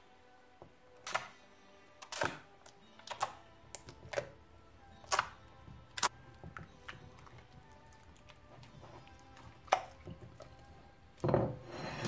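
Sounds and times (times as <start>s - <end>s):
slime squelching and popping: 6.8s - 10.5s.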